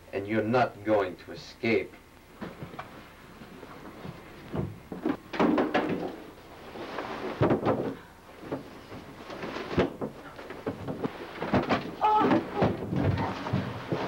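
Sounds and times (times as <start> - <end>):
people scuffling: 6.5 - 14.0.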